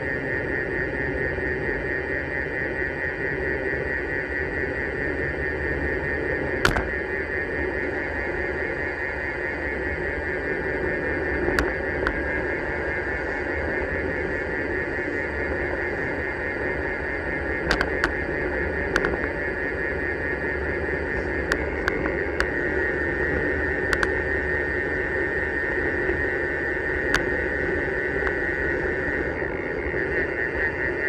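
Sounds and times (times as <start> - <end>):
high-pitched buzz: 0.0 - 31.0
sharp ticks: 17.6 - 18.2, 18.8 - 19.3, 23.9 - 24.2, 27.1 - 27.3.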